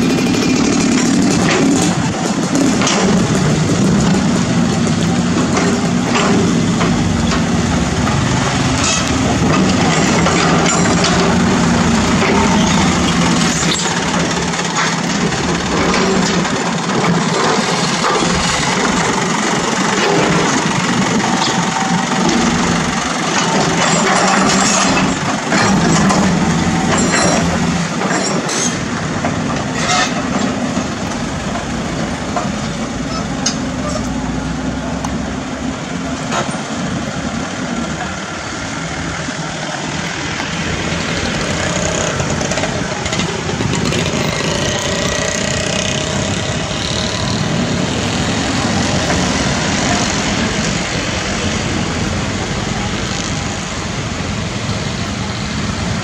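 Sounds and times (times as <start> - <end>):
diesel engines running: 0.0 - 56.0
metallic clanks and knocks: 0.2 - 19.1, 20.0 - 31.7.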